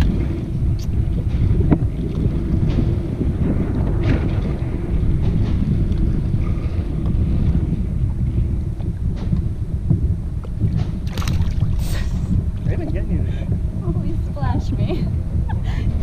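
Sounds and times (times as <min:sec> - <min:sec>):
wind buffeting microphone: 0:00.0 - 0:16.0
water splash: 0:10.6 - 0:12.7.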